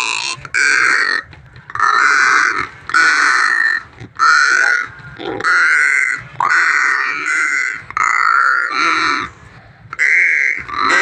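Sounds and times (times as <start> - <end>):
crow calling: 0.0 - 9.4, 10.0 - 11.0.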